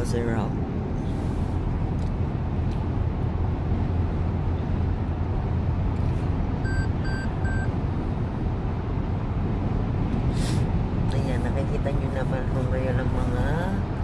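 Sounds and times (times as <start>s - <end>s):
car road and engine noise: 0.0s - 14.0s
short high electronic beeps: 6.7s - 7.7s.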